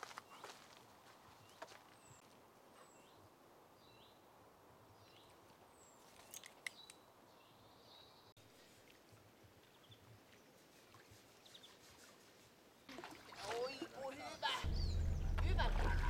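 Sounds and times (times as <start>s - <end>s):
faint bird chirps: 14.4s - 15.4s.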